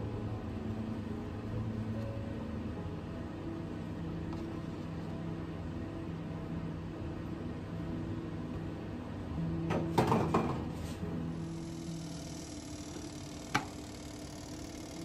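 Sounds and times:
steady low hum: 10.9 - 15.0.

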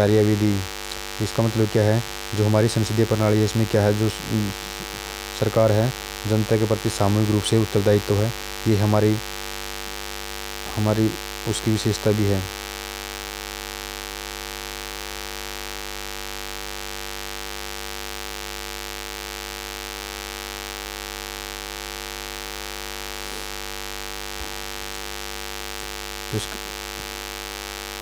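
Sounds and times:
faint hiss: 0.0 - 9.4, 23.0 - 25.2
electrical hum: 0.0 - 12.7, 21.8 - 28.0.

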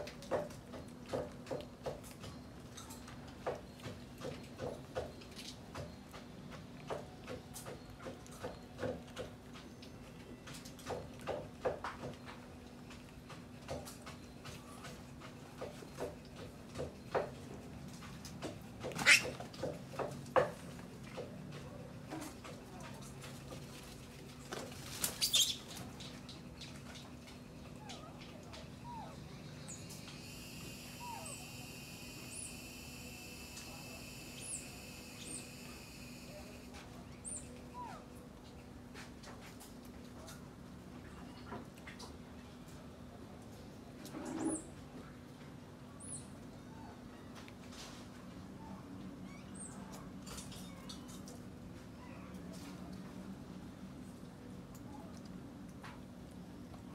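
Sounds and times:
monkeys smacking while eating: 0.0 - 44.2, 49.6 - 56.9
faint steady hum: 0.0 - 56.9
insect drone: 29.9 - 36.7.

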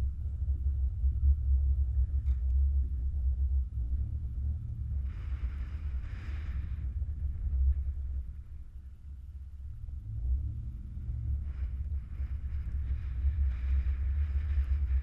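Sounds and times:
hiss: 5.0 - 7.1.

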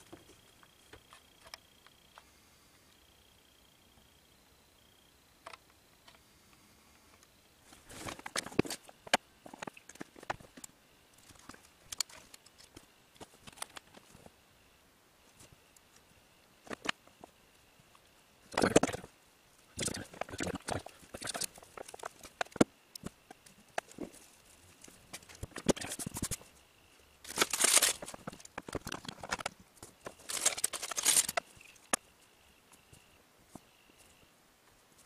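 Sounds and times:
cable and tools rustling: 7.7 - 14.3, 19.8 - 26.6, 27.2 - 32.0.

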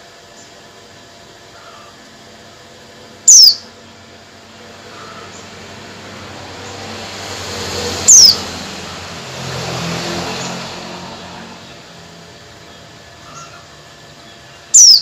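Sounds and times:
bird calling high notes: 3.2 - 3.8, 8.0 - 8.5, 12.8 - 15.0.

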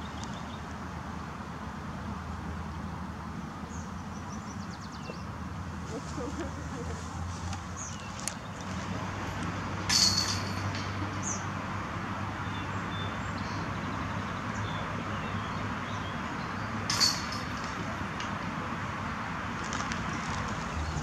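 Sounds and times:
bird chirp: 3.7 - 7.0, 7.6 - 8.8
metal chains jangling: 9.9 - 10.8, 16.9 - 17.6.

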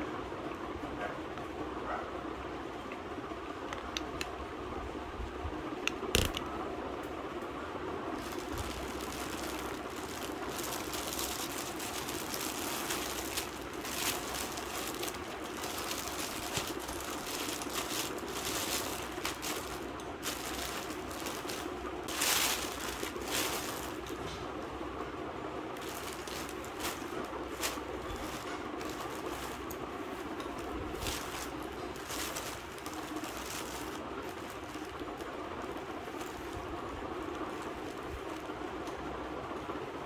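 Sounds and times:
steady background hum: 0.0 - 40.0
plastic wrapping crinkling: 8.2 - 24.5, 25.7 - 39.0.

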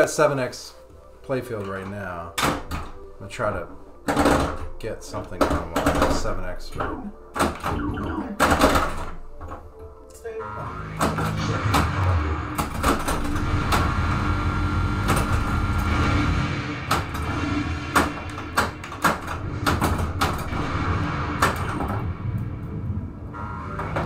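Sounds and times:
pinball background music: 1.4 - 24.0
pinball clacks and knocks: 4.0 - 9.6.

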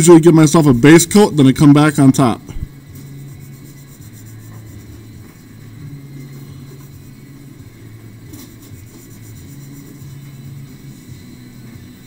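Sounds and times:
pencil rubbing on paper: 2.8 - 11.0.

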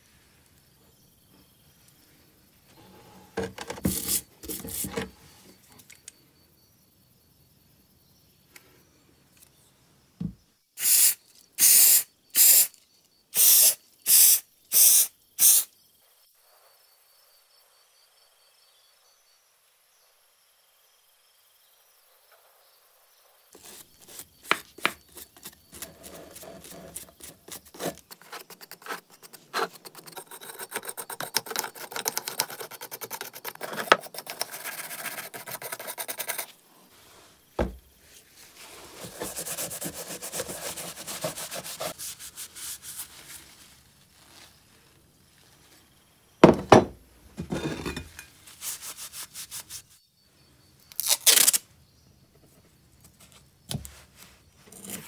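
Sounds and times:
short hissing sprays: 10.8 - 12.8, 13.4 - 15.7
brisk scrubbing and scraping: 23.6 - 37.4, 38.4 - 43.7.

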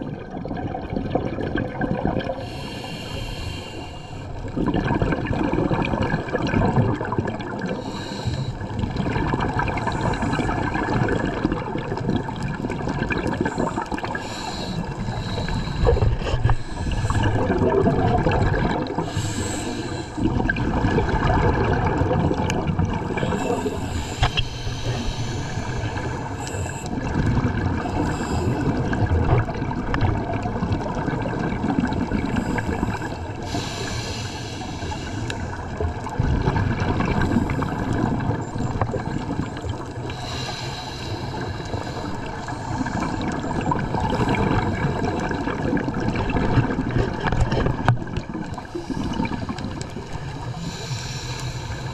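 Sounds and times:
underwater rumble and gurgle: 0.0 - 51.9
underwater hiss: 2.2 - 4.6, 7.6 - 8.8, 13.1 - 21.2, 22.4 - 29.0, 32.1 - 46.1, 47.2 - 51.9.

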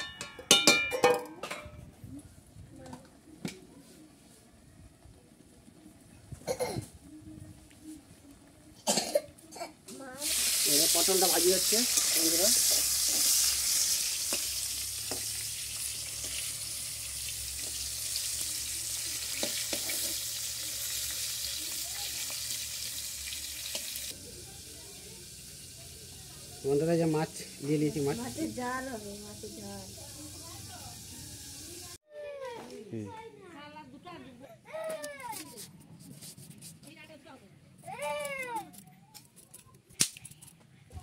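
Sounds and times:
fish frying in hot oil: 10.2 - 32.0.

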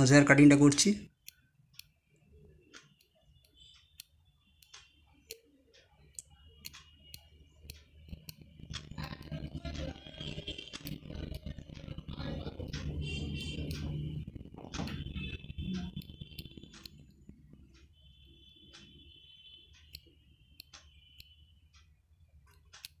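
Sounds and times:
steady low hum: 6.0 - 22.5.

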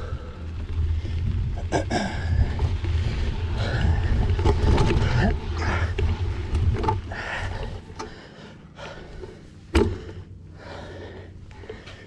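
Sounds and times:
person breathing heavily: 7.1 - 12.0.

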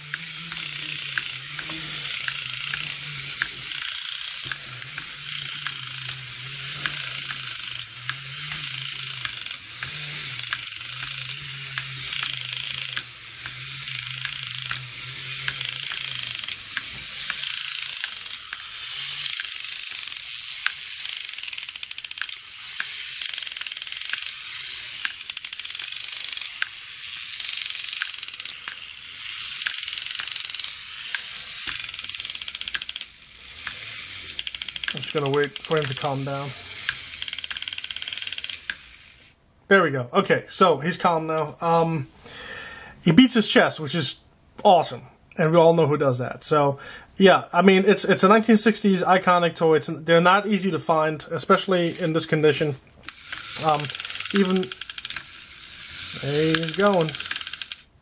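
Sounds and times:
wind-up toy mechanism growling: 0.0 - 39.4, 51.7 - 58.0
regular mechanical clicks: 0.0 - 39.5, 51.8 - 58.0.

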